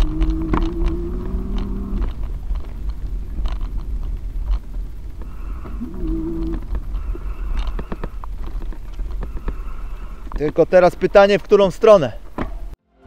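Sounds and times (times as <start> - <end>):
steady low hum: 0.0 - 10.4
knocks and rattles: 0.0 - 12.8
wind buffeting on microphone: 0.0 - 12.8.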